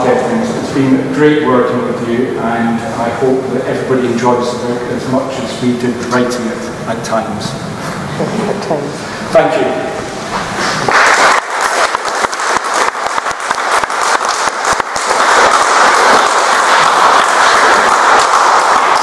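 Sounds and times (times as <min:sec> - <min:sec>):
audience applauding: 0:10.7 - 0:19.0.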